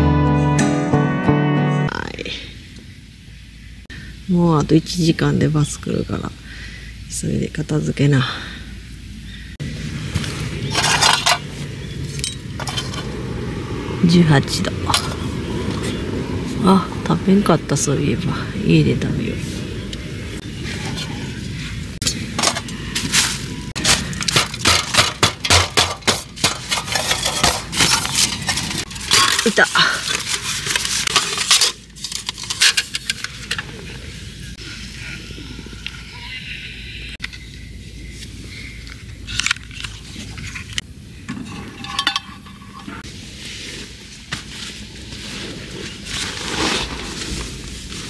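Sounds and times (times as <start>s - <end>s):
camp gear clinking and rattling: 10.6s - 13.2s, 23.8s - 34.2s, 39.0s - 43.1s
metal gear scraping and clinking: 10.7s - 11.5s, 26.5s - 33.6s
metal ringing: 41.3s - 43.0s.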